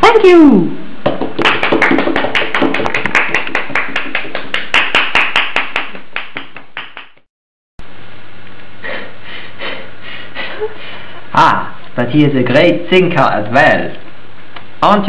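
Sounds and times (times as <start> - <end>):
hand clapping in an even beat: 1.0 - 7.3.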